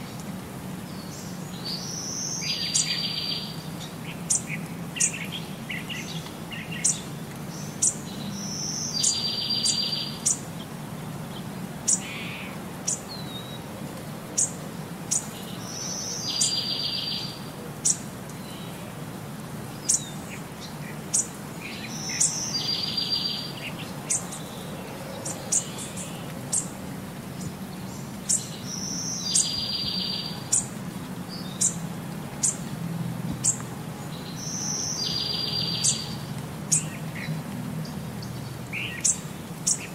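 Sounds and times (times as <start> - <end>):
bird chirping: 1.0 - 10.4, 14.4 - 18.8, 19.8 - 26.8, 27.4 - 31.8, 33.4 - 39.9.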